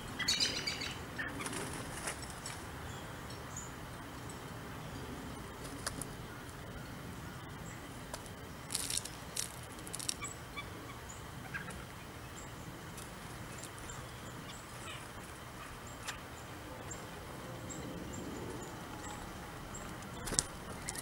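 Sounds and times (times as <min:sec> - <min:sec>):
distant bird chirps: 0:00.0 - 0:01.8, 0:10.0 - 0:21.0
bird wing flutters: 0:01.4 - 0:02.6, 0:19.8 - 0:21.0.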